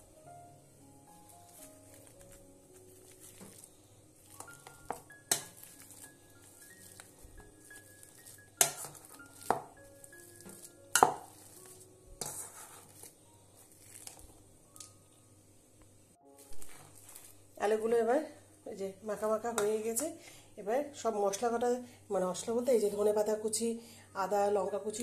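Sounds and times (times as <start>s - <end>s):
soft background music: 0.0s - 25.0s
masher mashing potatoes: 1.5s - 14.4s
masher clinking on metal bowl: 7.8s - 9.7s, 10.4s - 11.6s.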